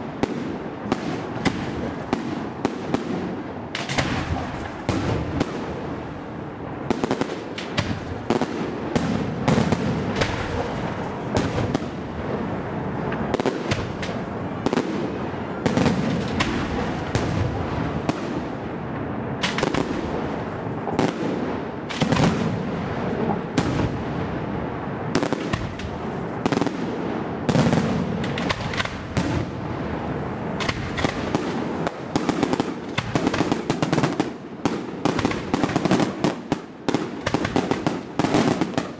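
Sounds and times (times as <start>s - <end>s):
firework shells bursting: 3.7s - 5.7s, 9.0s - 12.0s, 13.2s - 14.8s, 19.4s - 20.2s, 27.5s - 29.5s, 30.6s - 38.9s.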